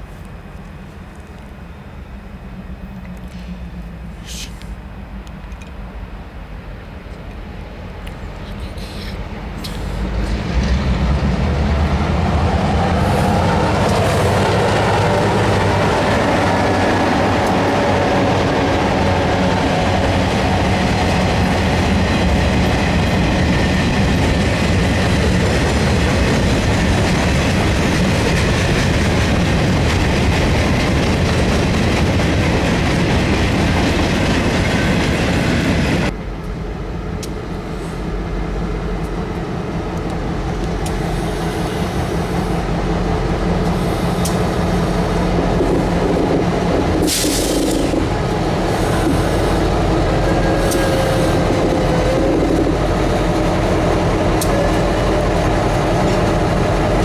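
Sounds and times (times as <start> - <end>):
diesel locomotive engines: 0.0 - 57.0
freight train rumble and clatter: 0.0 - 57.0
high hiss: 3.4 - 4.9, 8.5 - 10.1.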